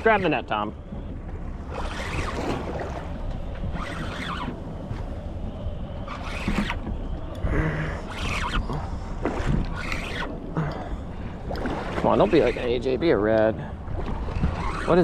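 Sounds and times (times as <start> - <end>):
fishing reel rasping: 1.7 - 2.6, 3.6 - 4.6, 6.0 - 6.9, 7.6 - 9.0, 9.6 - 10.9, 12.0 - 15.0.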